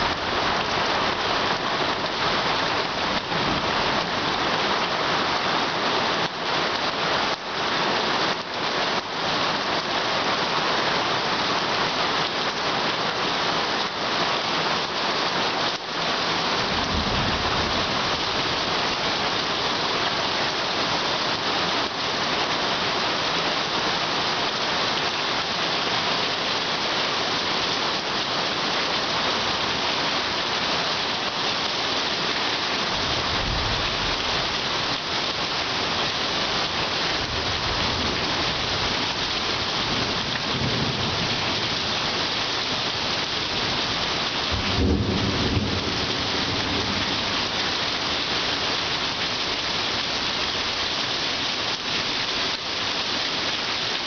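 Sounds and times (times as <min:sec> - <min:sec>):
heavy rain pouring: 0:00.0 - 0:54.0
rolling thunder: 0:16.7 - 0:18.1.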